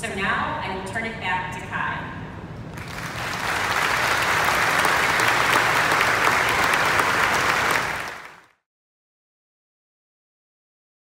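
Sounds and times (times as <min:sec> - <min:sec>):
audience applauding: 0:02.8 - 0:08.6.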